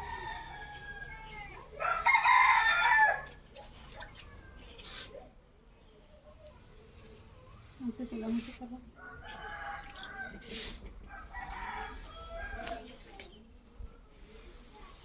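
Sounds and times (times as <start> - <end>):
rooster crowing: 0.0 - 3.3, 9.0 - 10.5, 11.1 - 12.9.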